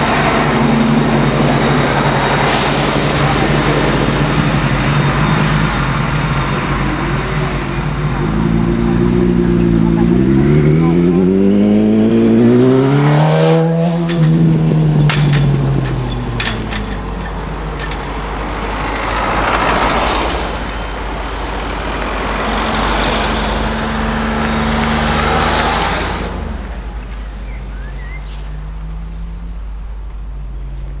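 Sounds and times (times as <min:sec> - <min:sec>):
vehicles driving past: 0:00.0 - 0:31.0
motorcycle engine revving past: 0:08.5 - 0:15.9.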